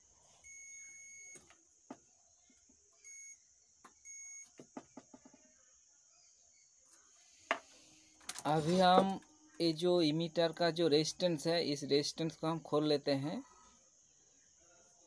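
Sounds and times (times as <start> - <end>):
multimeter continuity beeps: 0.4 - 1.4, 3.0 - 3.4, 4.0 - 4.6.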